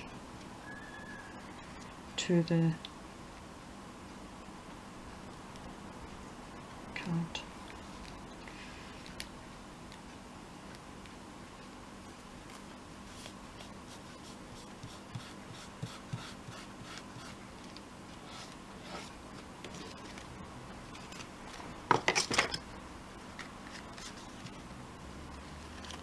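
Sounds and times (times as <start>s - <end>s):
fingers rubbing paper: 13.6s - 17.4s.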